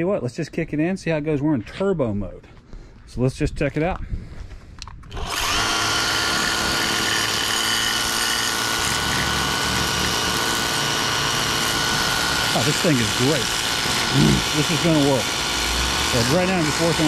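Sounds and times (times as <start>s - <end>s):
pressure washer pump whining: 5.1s - 17.0s.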